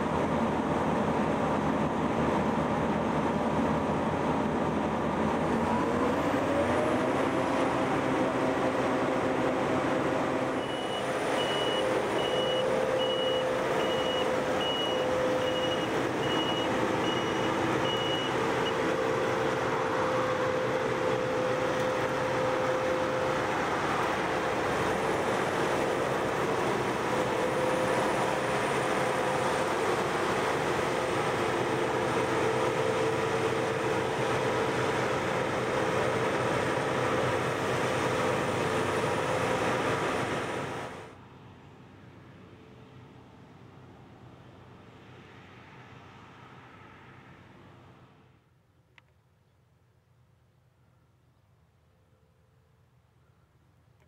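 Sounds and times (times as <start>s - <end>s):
combine harvester droning: 0.0s - 48.3s
reversing alarm beeping: 10.6s - 18.9s.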